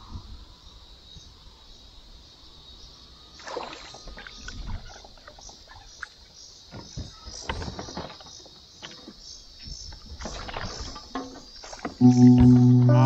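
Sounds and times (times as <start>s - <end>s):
high-pitched chirping: 12.0s - 13.0s.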